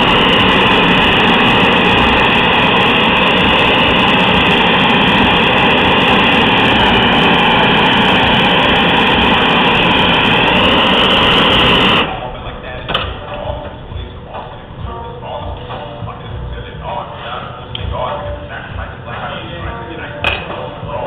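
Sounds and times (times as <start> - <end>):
gas torch roaring: 0.0 - 21.0.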